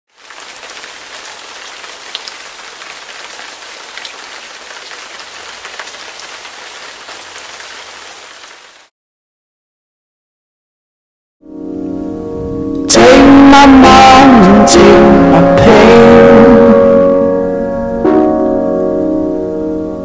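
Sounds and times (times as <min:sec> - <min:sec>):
steady rain hiss: 0:00.1 - 0:08.9
raindrop ticks: 0:00.2 - 0:08.6.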